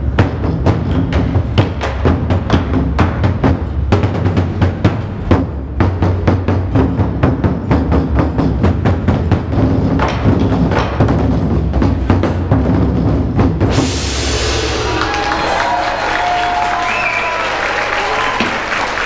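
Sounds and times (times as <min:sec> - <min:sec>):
barrel drums beating: 0:00.0 - 0:17.3
audience applause: 0:14.8 - 0:19.0.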